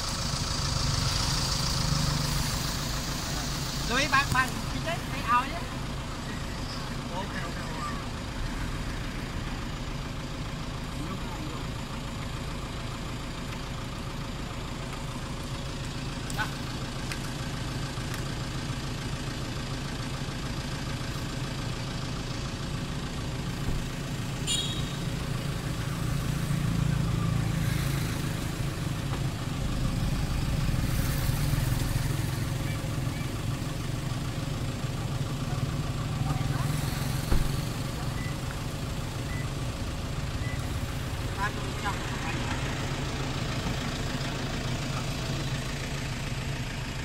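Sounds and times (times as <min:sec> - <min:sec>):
car engine humming: 0:00.0 - 0:47.0.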